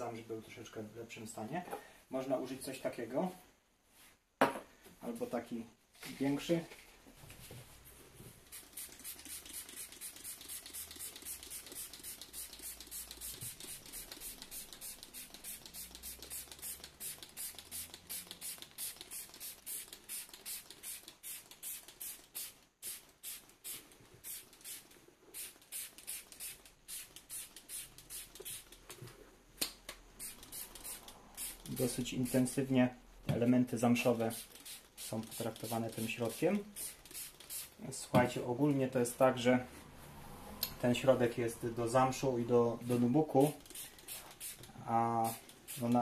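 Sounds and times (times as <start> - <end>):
spray bottle hissing squirts: 8.4 - 28.8, 30.1 - 31.8, 34.3 - 37.8, 43.5 - 46.0.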